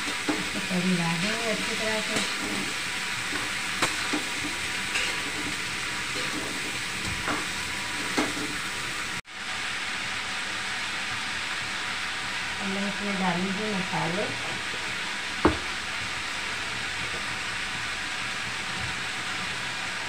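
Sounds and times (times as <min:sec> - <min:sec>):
vegetables sizzling in a pan: 0:00.0 - 0:20.0
metal spatula scraping a pan: 0:01.7 - 0:08.5.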